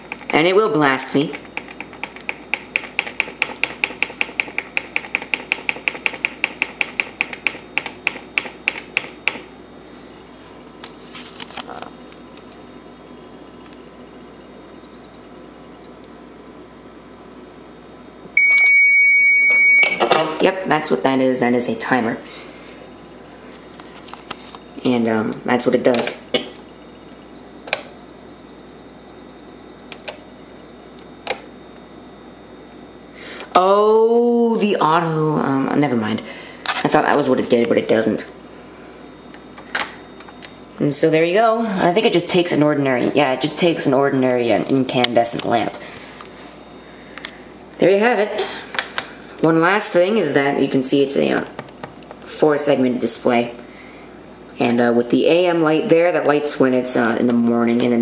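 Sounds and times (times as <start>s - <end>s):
faint steady hum: 0.0s - 58.0s
rapid high timer ticks: 1.4s - 9.4s.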